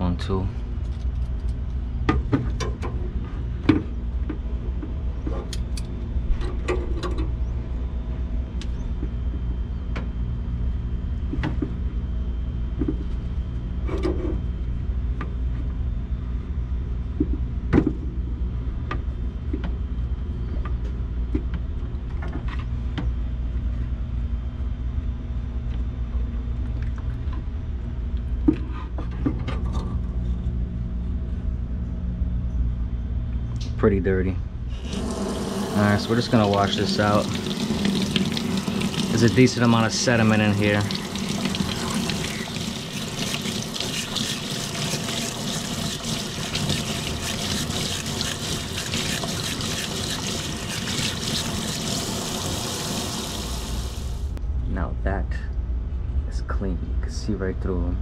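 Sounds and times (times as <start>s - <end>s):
low machine hum: 0.0s - 58.0s.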